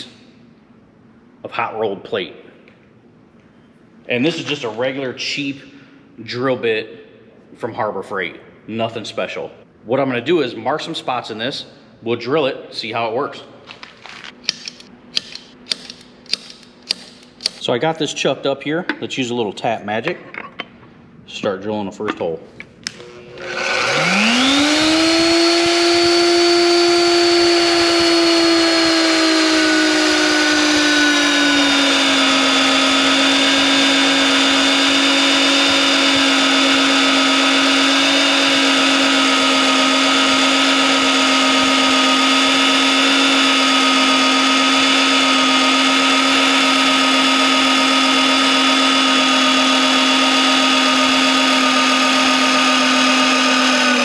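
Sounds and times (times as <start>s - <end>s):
drill press motor whining: 22.8s - 54.0s
drill bit cutting through steel: 23.0s - 54.0s.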